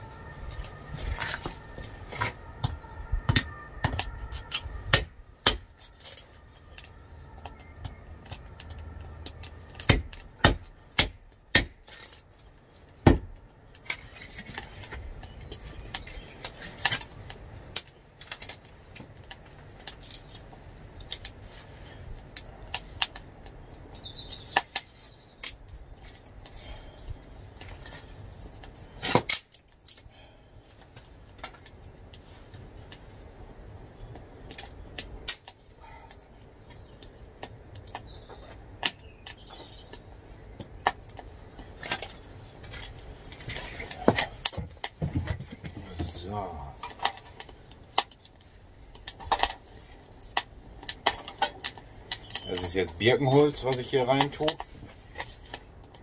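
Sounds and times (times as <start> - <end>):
wood being chopped: 1.0 - 6.2, 7.3 - 12.2, 13.0 - 17.1, 29.0 - 29.6.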